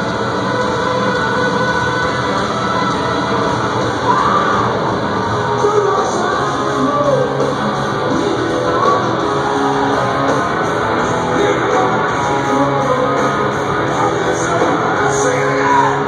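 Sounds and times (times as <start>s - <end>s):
electric guitar: 0.0s - 16.0s
live rock band playing: 0.0s - 16.0s
person singing: 5.5s - 10.4s, 11.0s - 16.0s.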